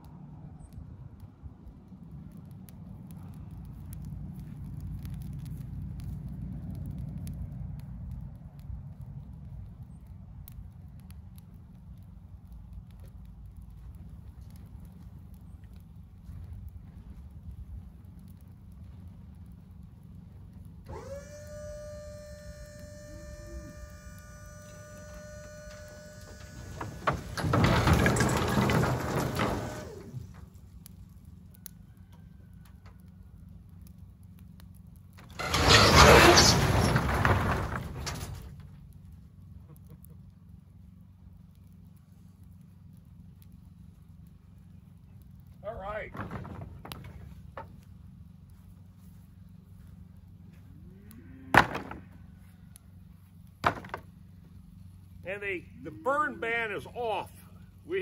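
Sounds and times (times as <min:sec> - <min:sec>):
fire crackling and popping: 0:00.0 - 0:58.0
hydraulic pump whining: 0:20.9 - 0:30.3
lumber clattering out of trailer: 0:25.7 - 0:30.5, 0:35.2 - 0:38.8, 0:46.1 - 0:47.8, 0:51.5 - 0:52.2, 0:53.6 - 0:54.1.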